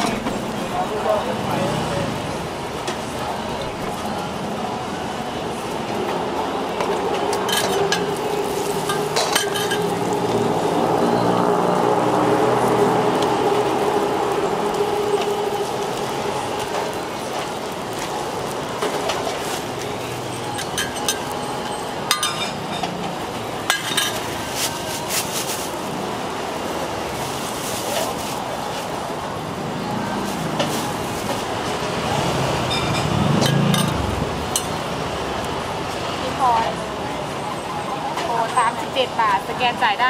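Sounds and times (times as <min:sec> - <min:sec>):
roti sizzling on griddle: 0:00.0 - 0:35.6
street traffic: 0:00.0 - 0:40.0
metal utensils clinking: 0:06.9 - 0:10.4, 0:20.4 - 0:25.6, 0:32.7 - 0:34.9
metal spatula clinking on griddle: 0:08.8 - 0:10.0, 0:20.5 - 0:21.4, 0:22.1 - 0:22.9.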